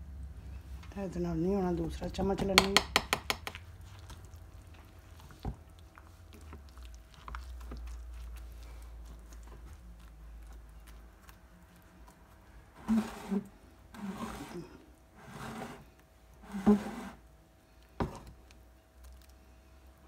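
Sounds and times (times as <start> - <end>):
low steady hum: 0.0 - 20.0
spatula stirring batter in glass bowl: 2.2 - 9.8
knock: 2.5 - 3.6.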